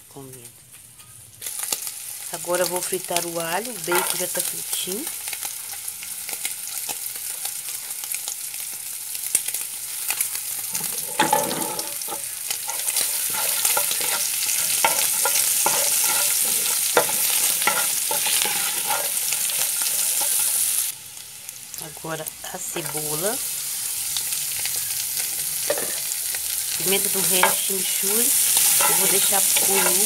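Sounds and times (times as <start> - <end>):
garlic and bacon sizzling in oil: 0.1 - 30.0
wooden spoon scraping and tapping pan: 10.8 - 20.5, 27.2 - 27.7, 28.4 - 30.0.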